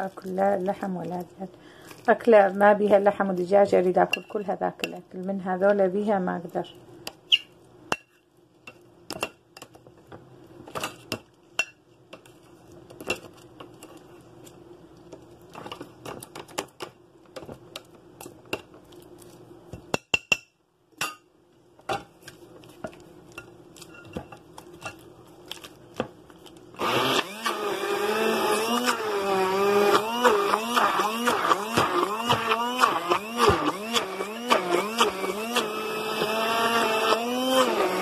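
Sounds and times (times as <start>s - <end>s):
electric blender motor: 26.8s - 38.0s.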